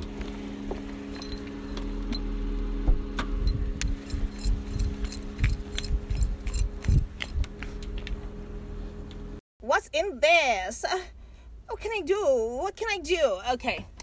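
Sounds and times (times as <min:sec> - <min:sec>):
high-heeled footsteps on gravel: 0:00.0 - 0:02.0
low hum: 0:00.0 - 0:09.4.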